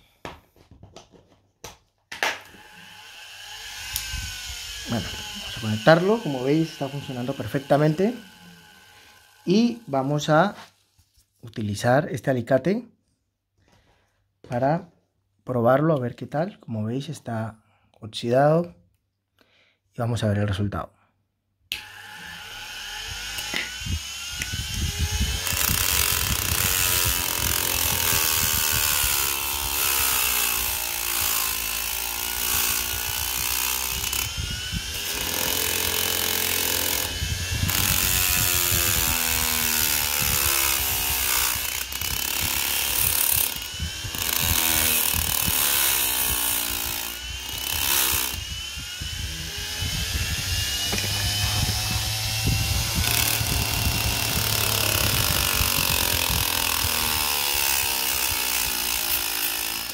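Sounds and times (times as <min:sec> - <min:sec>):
motor whine: 0:02.5 - 0:10.1, 0:21.8 - 0:59.9
polishing wheel grinding metal: 0:02.5 - 0:10.6, 0:21.8 - 0:59.9.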